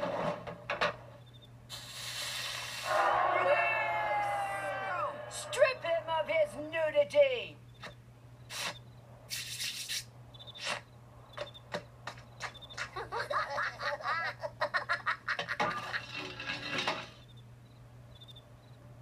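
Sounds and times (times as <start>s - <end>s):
steady low hum: 0.7s - 15.2s
short hiss: 1.7s - 2.9s, 8.5s - 10.8s
laughing voices: 2.8s - 6.3s, 12.4s - 16.3s.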